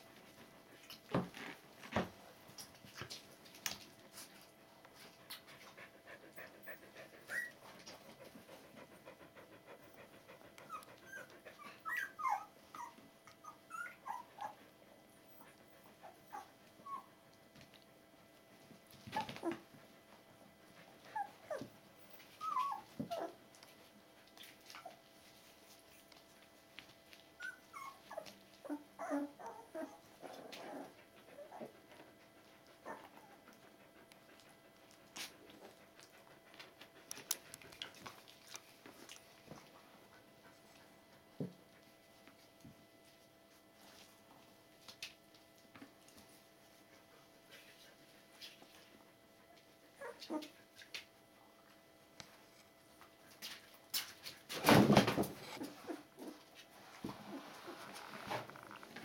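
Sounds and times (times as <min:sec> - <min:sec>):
puppies whimpering: 0:06.7 - 0:07.7, 0:10.6 - 0:14.6, 0:21.1 - 0:23.4, 0:27.4 - 0:31.8.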